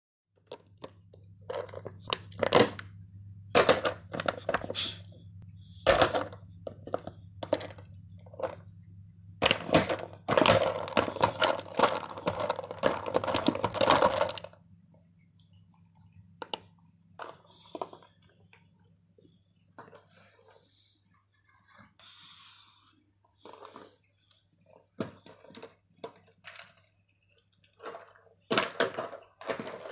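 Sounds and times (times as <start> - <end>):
plastic bottle crunching: 9.4 - 14.5.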